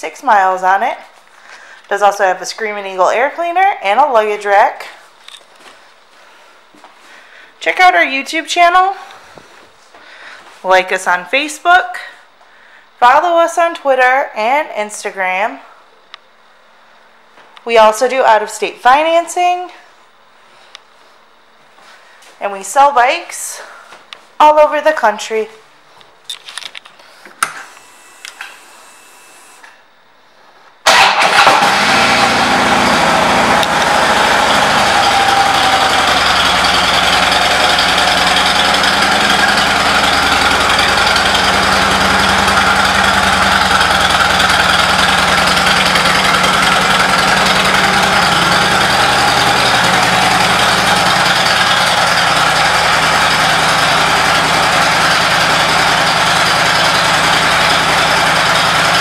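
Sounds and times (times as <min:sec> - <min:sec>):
motorcycle engine idling: 0:31.3 - 0:59.0.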